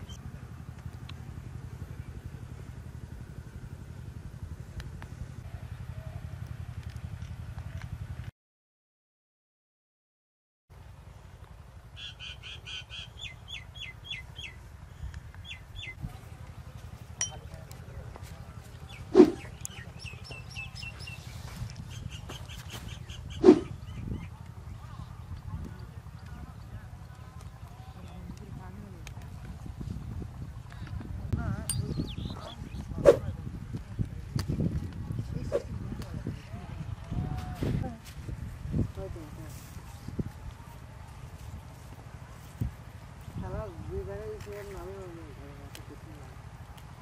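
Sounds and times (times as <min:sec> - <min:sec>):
small engine running: 0:00.0 - 0:08.3
small birds chirping: 0:12.0 - 0:28.2, 0:31.6 - 0:33.1.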